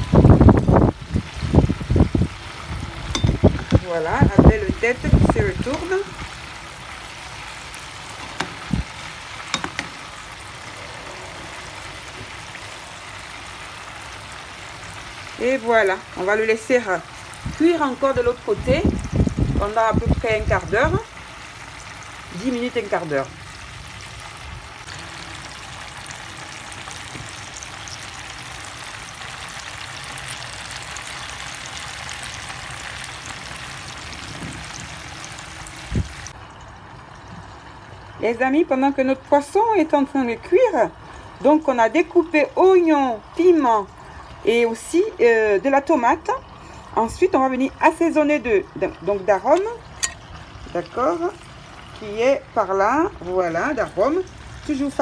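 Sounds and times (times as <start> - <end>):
fish sizzling in oil: 0.0 - 55.0
metal spatula clicking on pan: 9.5 - 9.9, 49.5 - 50.2.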